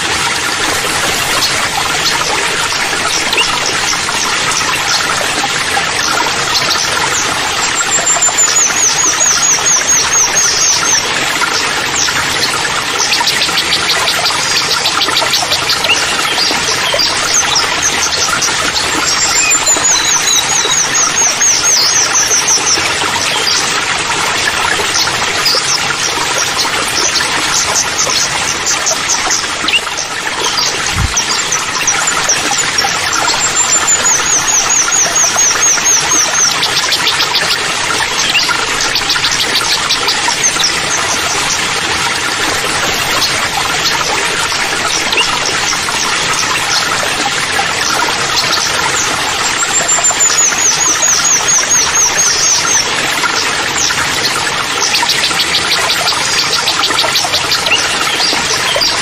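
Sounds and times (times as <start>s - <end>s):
birds trilling and chirping: 0.0s - 59.0s
waterfall splashing into pool: 0.0s - 59.0s.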